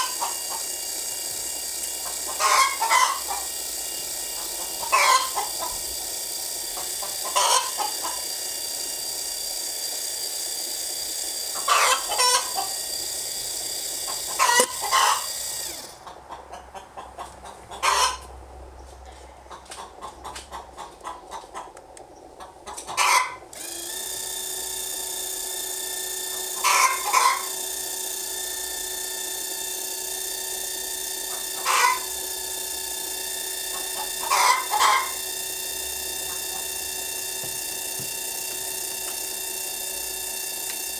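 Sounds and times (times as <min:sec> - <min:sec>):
chickens clucking: 0:02.3 - 0:03.4, 0:04.8 - 0:05.8, 0:06.8 - 0:08.2, 0:11.6 - 0:12.6, 0:14.1 - 0:15.3, 0:15.9 - 0:23.4, 0:31.6 - 0:32.0, 0:33.7 - 0:35.2.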